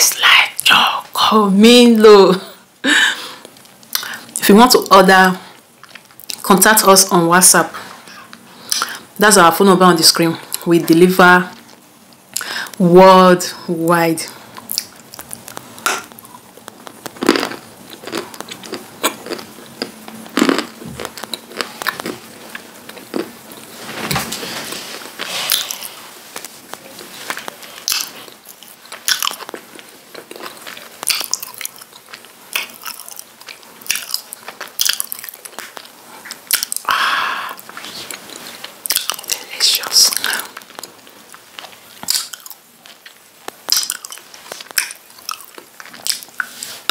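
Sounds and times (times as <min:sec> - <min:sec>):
crunchy chewing of clay: 0:14.6 - 0:23.7, 0:24.8 - 0:36.9, 0:41.6 - 0:46.9.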